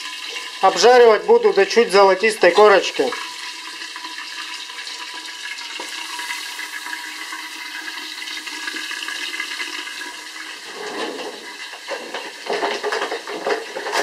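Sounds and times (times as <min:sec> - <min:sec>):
meat sizzling in a pot: 0:00.0 - 0:14.0
clatter: 0:10.8 - 0:14.0.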